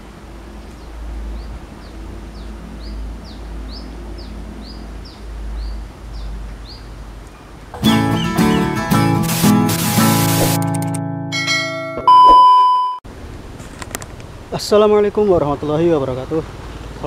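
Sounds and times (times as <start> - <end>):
bird calling sharp falling notes: 7.8 - 9.0
loud guitar music: 7.8 - 12.0.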